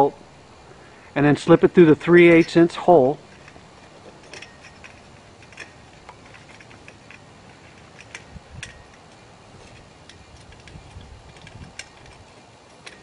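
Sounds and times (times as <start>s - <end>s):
metallic clicks of bolt handling: 3.2s - 13.0s.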